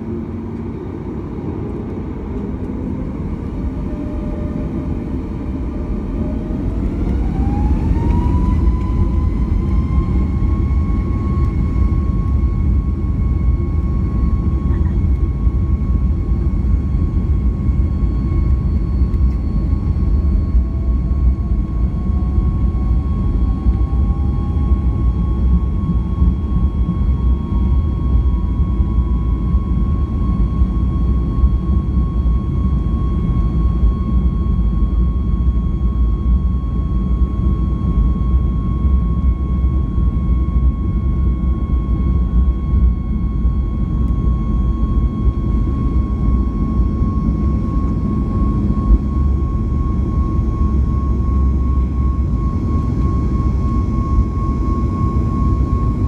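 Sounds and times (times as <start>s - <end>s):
rising engine tone: 0.0s - 12.5s
jet engines roaring: 0.0s - 56.0s.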